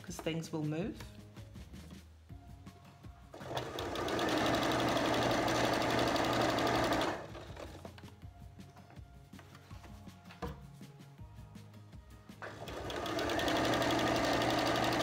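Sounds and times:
sewing machine stitching: 3.3 - 7.9, 12.4 - 15.0.

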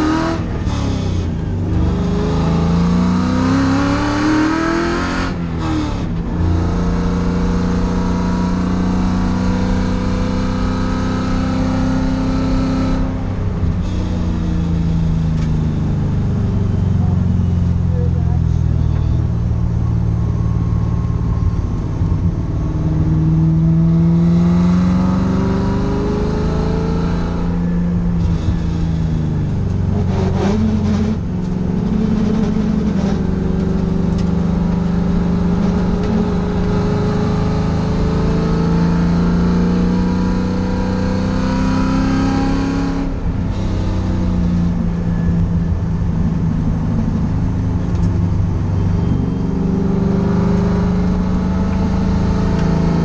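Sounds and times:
car engine revving hard: 0.0 - 15.5, 22.1 - 29.1, 29.7 - 45.5, 49.0 - 53.0
clatter: 28.2 - 34.9.

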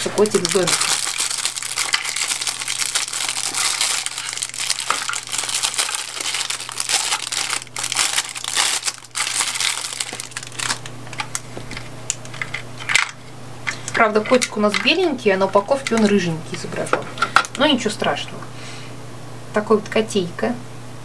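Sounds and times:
plastic bag crinkling: 0.0 - 16.2.

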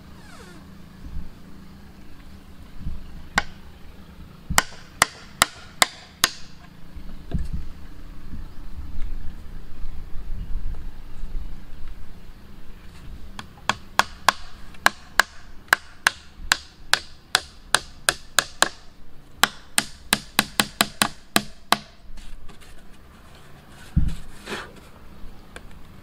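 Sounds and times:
hand tool striking wood: 4.6 - 6.6, 19.4 - 22.0.

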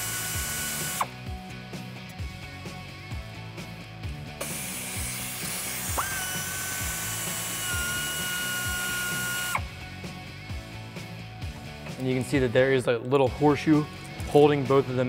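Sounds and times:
air ratchet whining: 0.0 - 1.2, 4.4 - 9.7
background music with steady beat: 0.0 - 15.0.

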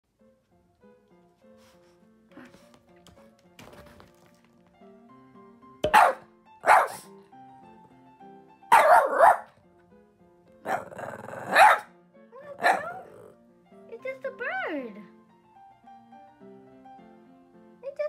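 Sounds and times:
dog barking: 5.9 - 7.1, 8.7 - 9.5, 10.6 - 11.9, 12.5 - 13.3.

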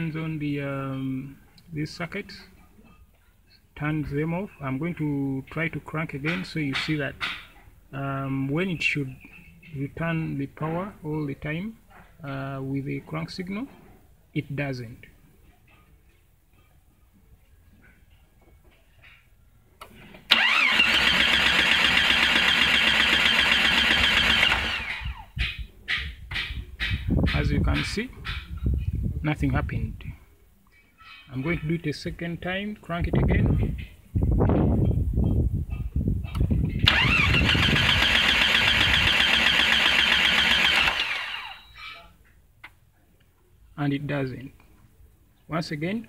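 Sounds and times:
engine cranking not starting: 20.2 - 25.3, 36.8 - 41.9.

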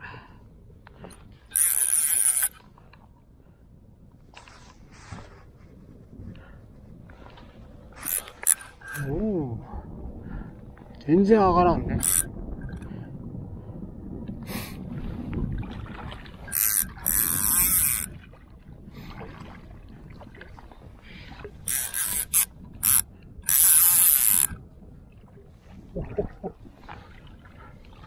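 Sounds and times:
fishing reel ratchet buzzing: 1.5 - 2.6, 8.0 - 9.1, 12.0 - 12.8, 16.5 - 18.1, 21.7 - 24.6.

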